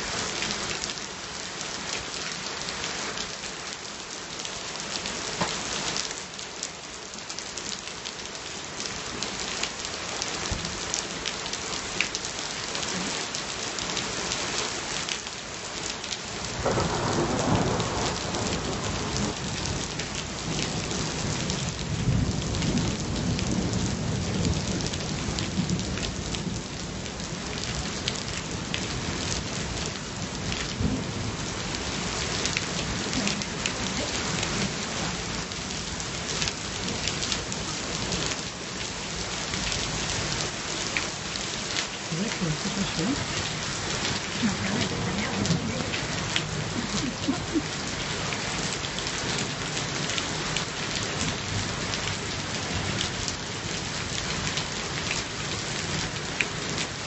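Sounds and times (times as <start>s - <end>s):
steady rain falling: 0.0s - 57.0s
thunder rumbling: 16.6s - 19.4s.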